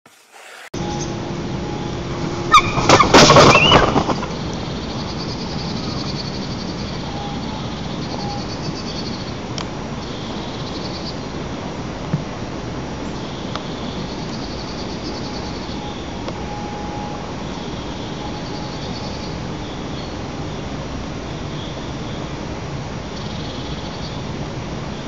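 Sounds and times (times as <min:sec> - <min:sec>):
steady outdoor hiss: 0:00.1 - 0:25.0
heavy wing flaps: 0:02.7 - 0:04.4.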